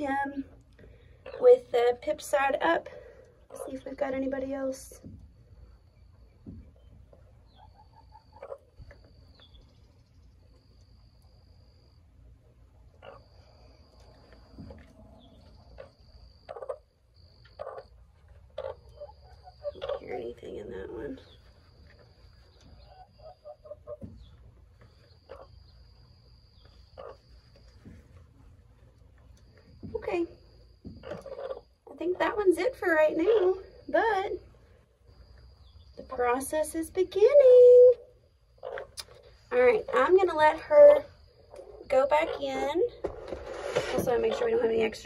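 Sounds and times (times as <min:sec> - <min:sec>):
hen clucking softly: 0:07.5 - 0:09.0, 0:12.9 - 0:20.3, 0:21.4 - 0:25.7, 0:26.9 - 0:28.0.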